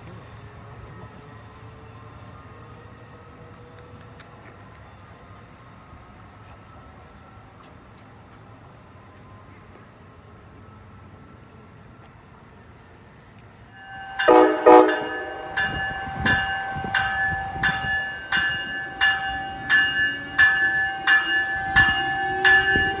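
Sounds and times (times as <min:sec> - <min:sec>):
locomotive bell ringing: 0:13.6 - 0:23.0
train horn blasts: 0:13.8 - 0:17.8.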